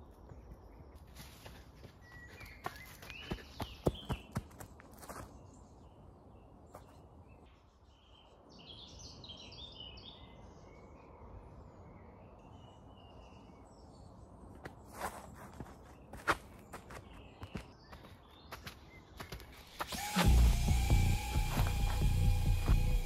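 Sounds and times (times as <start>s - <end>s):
footsteps on dirt path: 0.0s - 5.7s, 6.7s - 7.0s, 14.6s - 23.0s
birds chirping: 0.0s - 23.0s.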